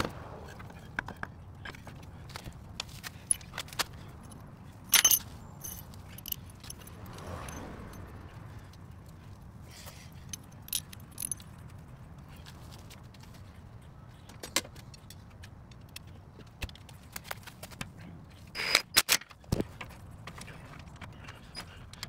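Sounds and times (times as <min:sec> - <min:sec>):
metallic clinks of hand tools: 0:03.1 - 0:08.0, 0:10.2 - 0:11.5.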